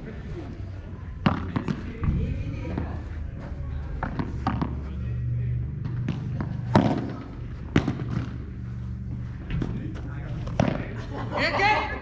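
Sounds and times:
padel ball struck by rackets: 6.0s - 8.4s.

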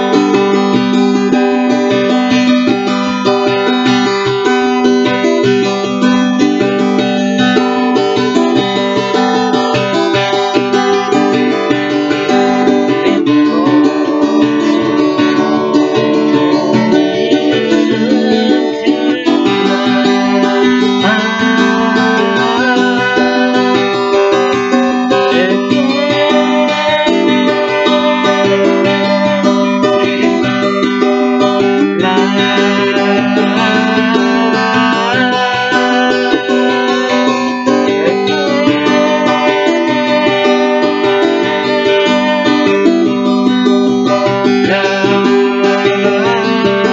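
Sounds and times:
classical guitar strumming: 0.0s - 46.9s
woman singing: 16.4s - 42.8s.

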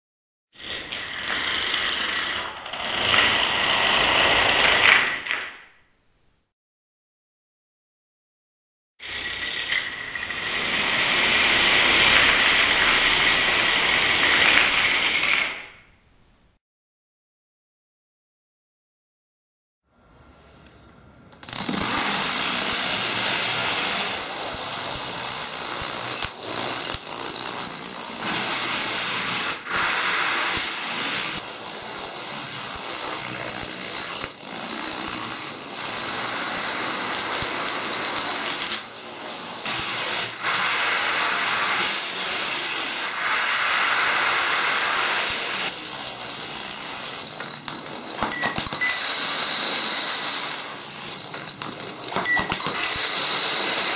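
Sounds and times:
domino tiles toppling: 45.8s - 53.6s.

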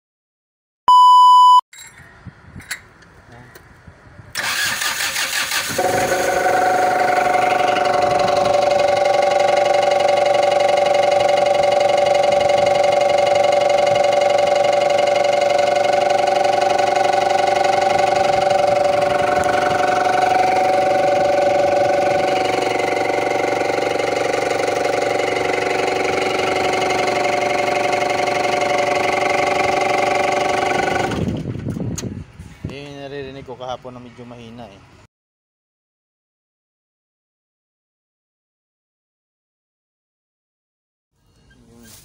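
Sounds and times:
forklift engine running: 4.3s - 32.4s
engine knocking: 4.4s - 31.4s.

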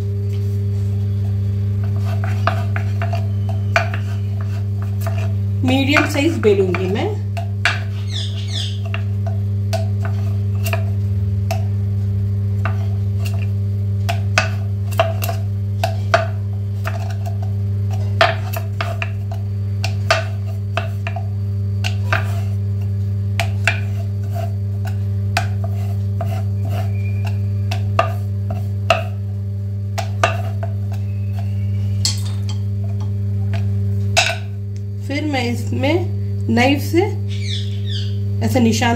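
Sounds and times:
steady low hum: 0.0s - 38.9s
rolling pin rolling dough on board: 0.3s - 11.7s, 12.6s - 31.9s.

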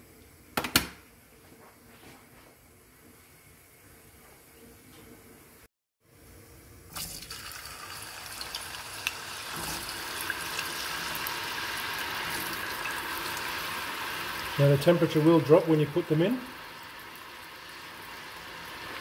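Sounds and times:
oil sizzling and crackling: 6.9s - 19.0s.

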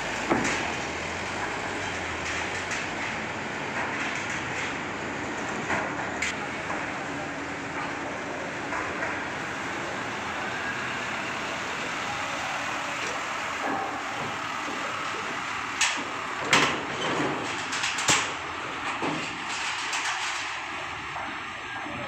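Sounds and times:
diesel truck engine running: 0.0s - 22.0s
clanks on steel ramp: 0.1s - 7.0s, 13.1s - 21.4s.

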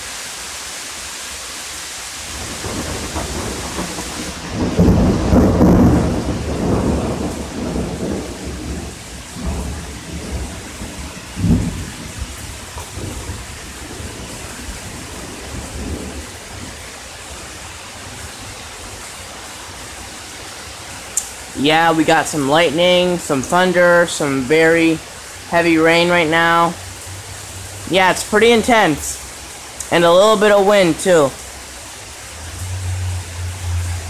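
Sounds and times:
heavy rain: 0.0s - 34.0s
thunder rumbling: 2.2s - 19.0s
thunder clap: 2.3s - 16.8s.

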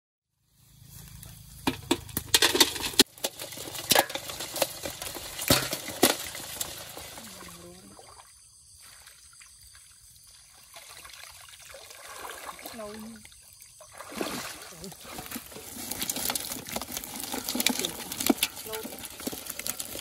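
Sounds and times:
sharp water splashes and knocks: 10.4s - 20.0s
net dragged through water: 10.5s - 20.0s.

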